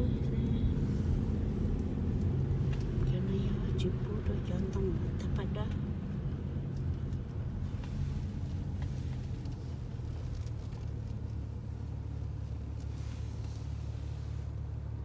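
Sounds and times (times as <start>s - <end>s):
car interior low rumble: 0.0s - 15.0s.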